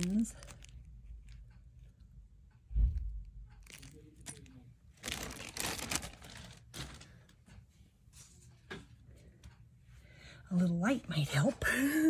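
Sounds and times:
plastic bag crinkling: 0.0 - 1.4, 3.6 - 7.3.

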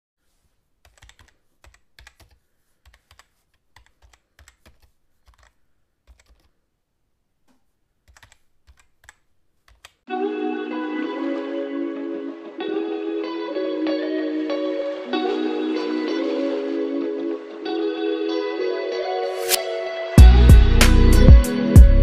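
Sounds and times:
keyboard typing: 0.8 - 6.6, 7.5 - 10.0
music: 10.1 - 22.0.

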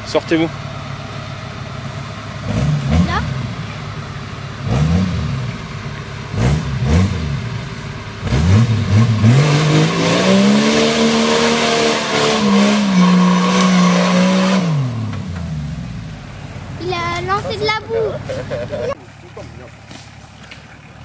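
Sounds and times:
engine revving: 1.9 - 16.4.

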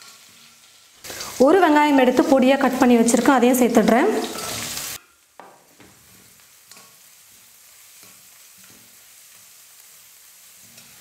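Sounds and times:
onion sizzling in hot oil: 0.0 - 11.0
metal spatula scraping pan: 4.2 - 5.1.

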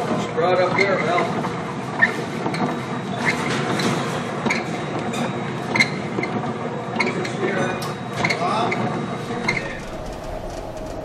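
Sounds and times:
storm wind rushing: 9.3 - 11.0.

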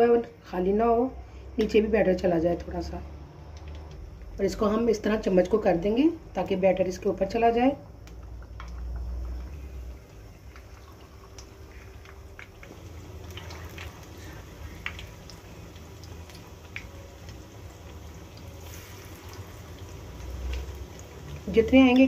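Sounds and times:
oil sizzling and bubbling: 1.3 - 22.0
small pops and crackles: 8.0 - 22.0.

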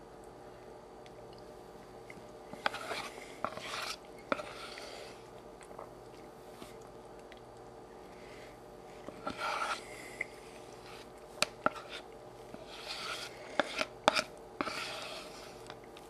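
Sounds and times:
spoon scraping plastic cup: 2.6 - 5.0, 9.1 - 9.8, 10.9 - 15.7.

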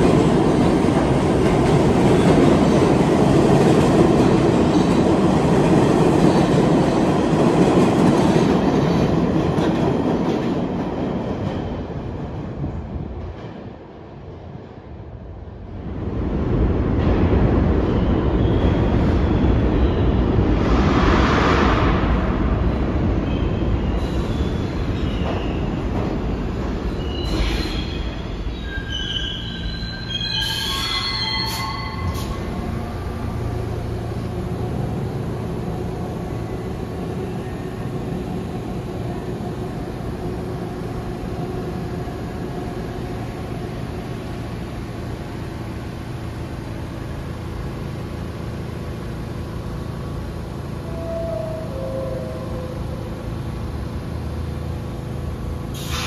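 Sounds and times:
subway train rumbling: 0.0 - 56.0
train wheels squealing: 17.8 - 20.3, 23.2 - 25.9, 26.8 - 32.6.

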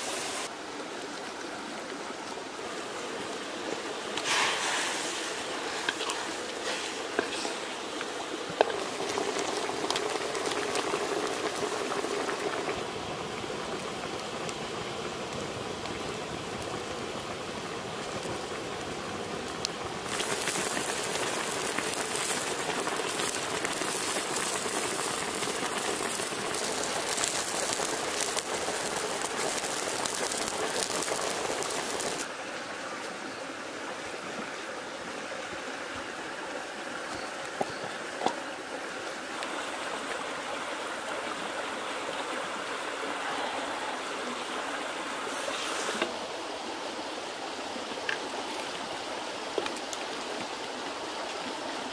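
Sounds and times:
burning wood crackling: 0.0 - 32.3
broth boiling in a wok: 2.6 - 51.9.

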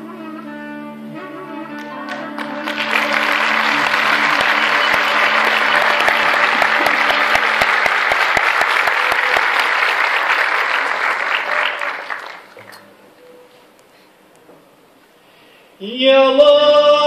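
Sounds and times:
audience applauding: 1.8 - 12.8.

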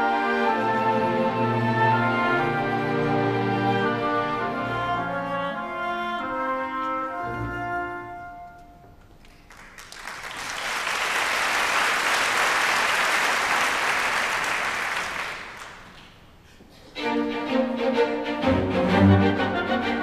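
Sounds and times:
orchestra playing: 0.0 - 9.0, 17.0 - 20.0
audience applause: 9.3 - 16.2.

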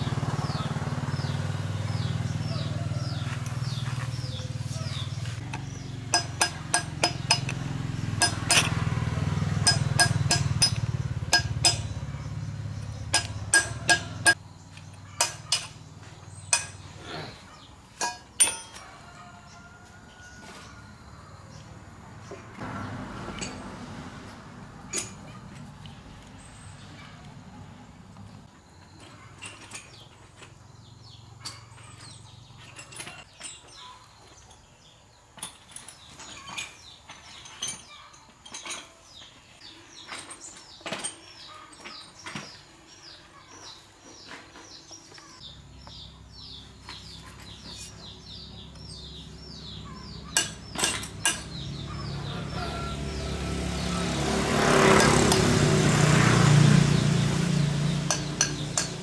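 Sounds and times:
vehicle engine: 0.0 - 17.7, 20.4 - 33.3, 44.2 - 59.0
metallic clinks and knocks: 5.5 - 8.9, 9.5 - 14.4, 15.1 - 15.8, 16.5 - 16.8, 18.0 - 18.9, 24.9 - 25.6, 31.4 - 42.6, 50.3 - 52.1.

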